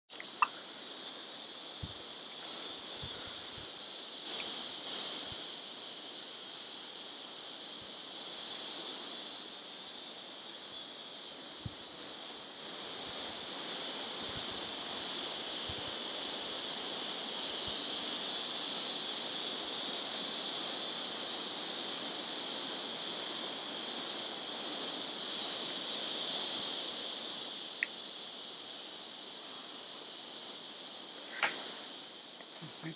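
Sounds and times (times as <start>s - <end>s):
steady high hiss: 0.1s - 32.9s.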